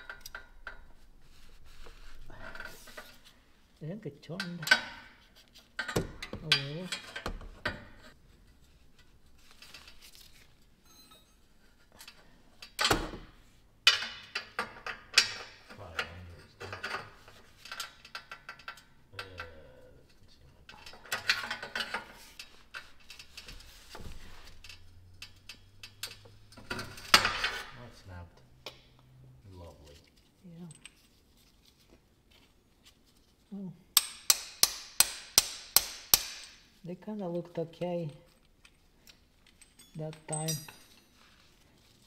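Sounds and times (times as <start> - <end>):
metal tool clanks: 39.5 - 41.2.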